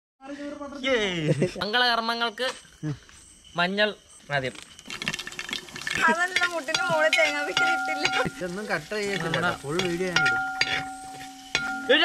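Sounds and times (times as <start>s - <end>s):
onions sizzling in frying pan: 4.8s - 12.0s
spatula scraping and clicking on pan: 6.3s - 8.4s, 9.0s - 11.9s
steady held tone: 6.7s - 12.0s.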